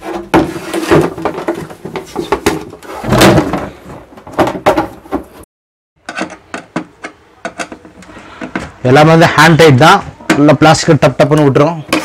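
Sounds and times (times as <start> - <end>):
hollow plastic knocks and clunks: 0.0 - 5.4.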